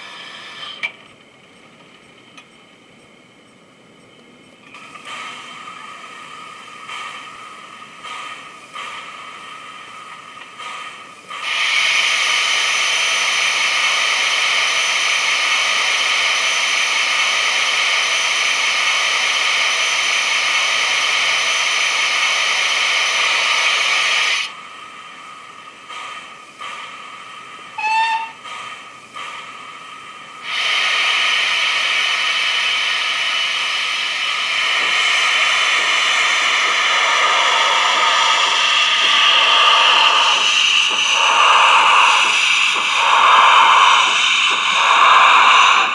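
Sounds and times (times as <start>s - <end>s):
loud steam hiss: 0.0s - 0.8s, 4.7s - 45.9s
soft steam puffs: 0.0s - 45.9s
brief whistle toot: 27.8s - 28.4s.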